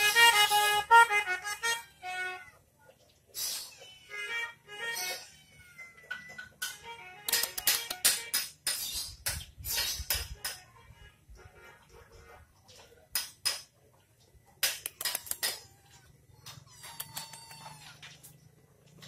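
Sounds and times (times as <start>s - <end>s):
sharp clacks and knocks: 6.2s - 10.7s, 13.1s - 13.9s, 14.5s - 15.7s.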